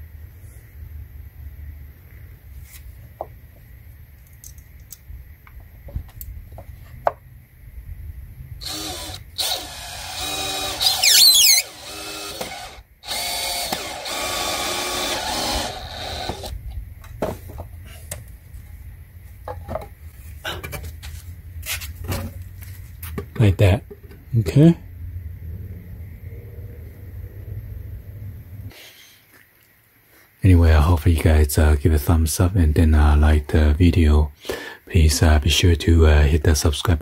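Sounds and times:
cordless drill driving screw: 8.6 - 16.5.

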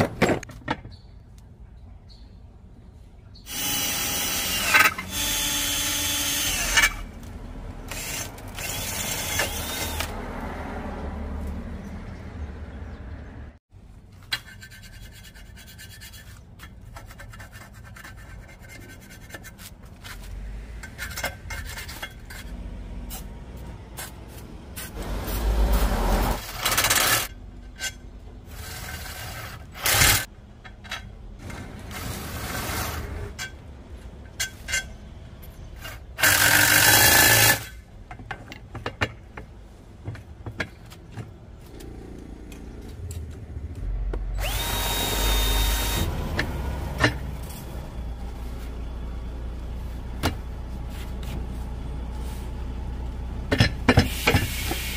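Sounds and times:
filing and scraping metal: 14.2 - 23.3.

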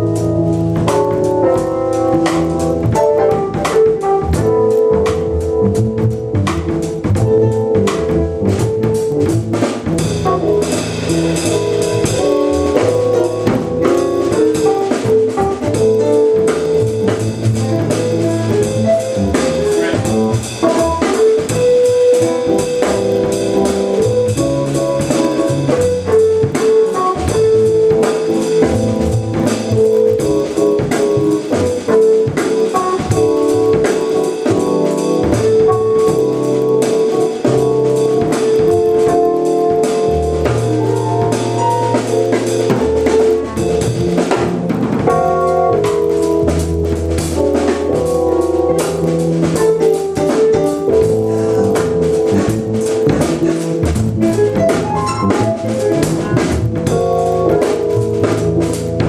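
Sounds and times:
low bass line: 0.0 - 32.4, 34.5 - 59.0
drum kit groove: 0.0 - 59.0
electric keyboards: 0.0 - 59.0.

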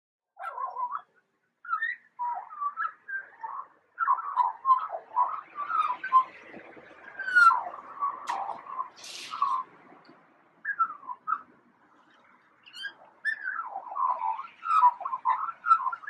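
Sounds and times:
magpie calling: 0.4 - 1.1, 1.7 - 6.3, 7.2 - 9.7, 10.6 - 11.5, 12.6 - 16.0.

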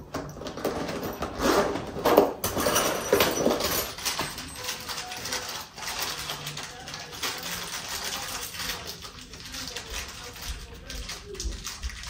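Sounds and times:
screws clinking and clattering: 0.2 - 8.9.

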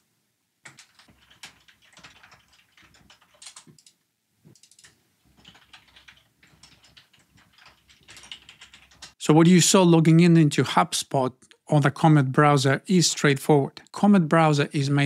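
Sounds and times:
faint keyboard typing: 0.6 - 9.2.

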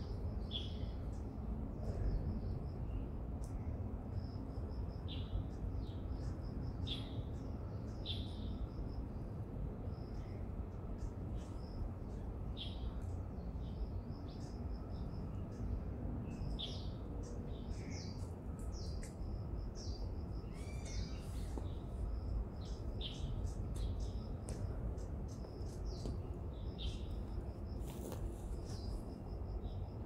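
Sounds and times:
steady low rumble: 0.0 - 30.0
birds chirping: 12.5 - 27.3.

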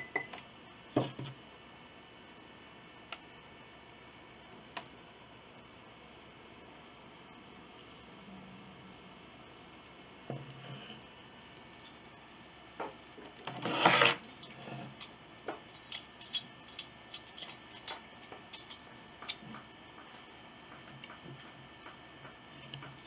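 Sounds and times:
wood scraping against board: 13.5 - 15.0.

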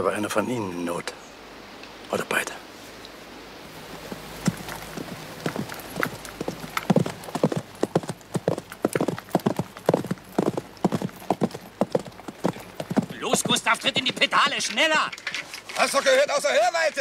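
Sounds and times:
horse hoofbeats walking: 3.8 - 16.1.

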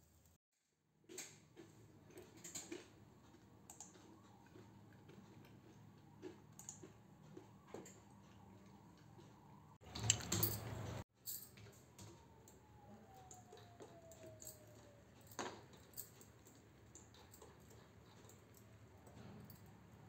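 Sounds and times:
bangles clinking: 10.0 - 11.6.

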